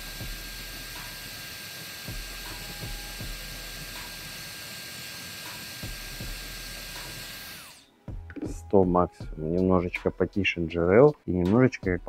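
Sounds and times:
hair dryer running: 0.0s - 7.9s.

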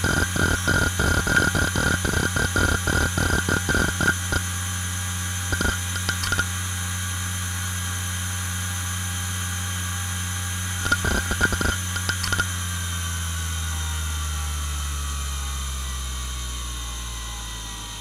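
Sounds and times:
hard drive spindle hum: 0.0s - 4.6s, 5.4s - 6.6s, 10.5s - 12.6s
hard drive head clicking: 5.5s - 6.5s, 10.8s - 12.4s.

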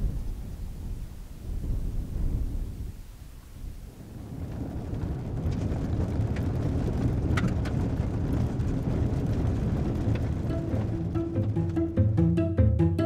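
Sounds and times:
gravel clicks: 0.0s - 12.0s
tyres and engine rumbling: 3.8s - 13.0s.

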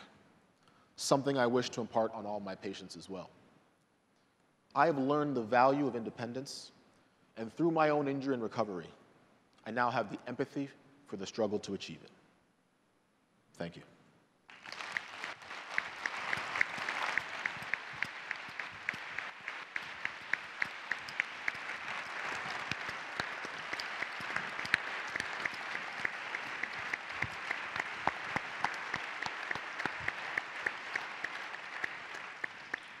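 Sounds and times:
audience applauding: 14.5s - 33.0s.

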